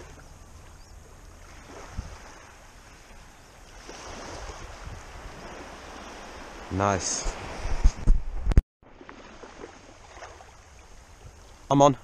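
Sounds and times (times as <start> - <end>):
small waves washing on sand: 0.0 - 8.0, 8.8 - 11.7
wind rumble on microphone: 0.8 - 2.9, 3.8 - 8.6.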